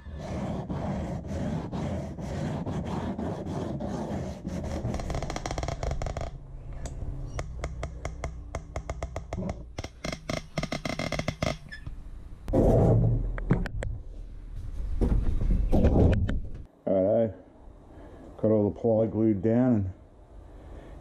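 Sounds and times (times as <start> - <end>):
sandpaper scraping wood: 0.0 - 5.4.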